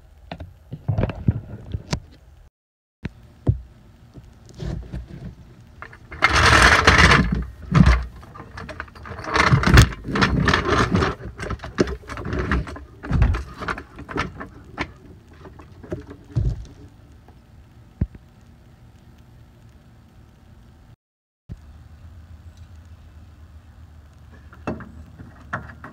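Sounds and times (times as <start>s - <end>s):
jack wheels scraping on concrete: 4.5s - 16.9s, 24.3s - 25.9s
floor jack clanks and clicks: 4.7s - 16.8s.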